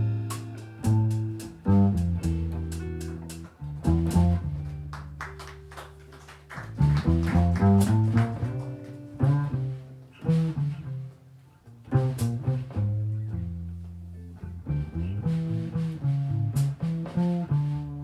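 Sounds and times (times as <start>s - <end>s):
electric guitar chords: 0.0s - 5.7s
plucked double bass: 0.0s - 18.0s.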